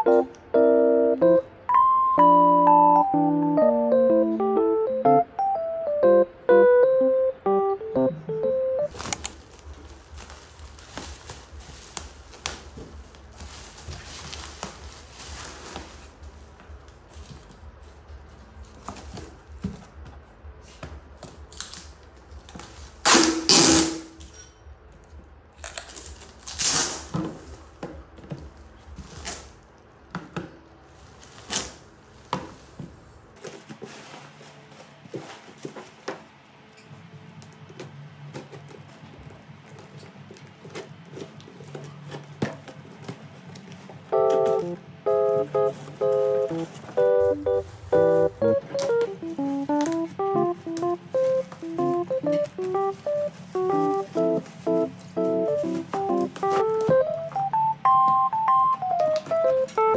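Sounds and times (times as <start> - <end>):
plastic wrapping crinkling: 8.9 - 20.0, 25.6 - 29.8, 30.8 - 32.8, 38.4 - 57.5, 58.1 - 59.9.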